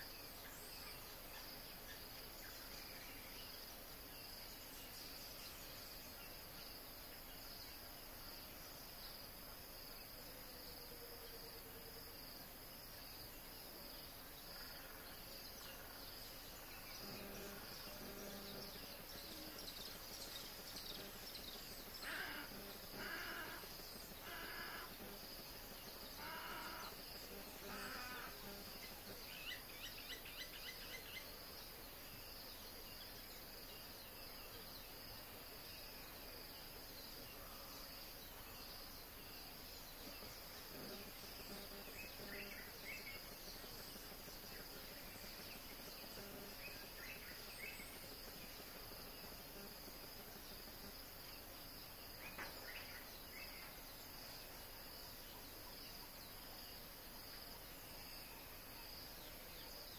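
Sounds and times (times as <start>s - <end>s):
insects droning: 0.0s - 59.9s
short bird calls: 22.0s - 25.2s, 26.2s - 27.0s.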